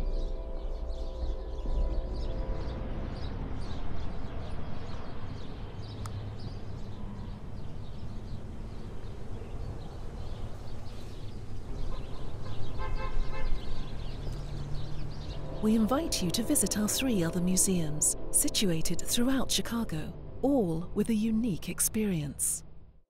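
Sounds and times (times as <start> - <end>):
small birds chirping: 0.0 - 22.4
steady low rumble: 15.3 - 23.0.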